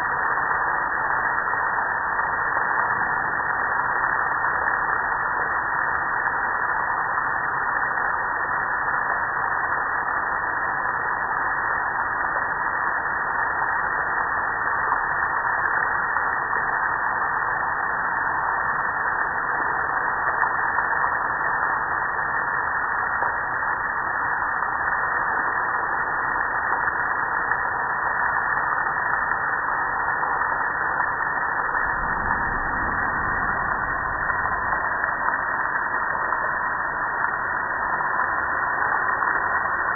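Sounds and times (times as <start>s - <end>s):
deeper water rushing: 30.0s - 39.9s.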